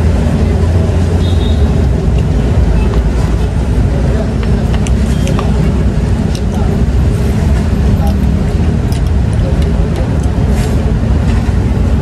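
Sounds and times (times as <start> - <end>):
low rumble of road traffic: 0.0 - 12.0.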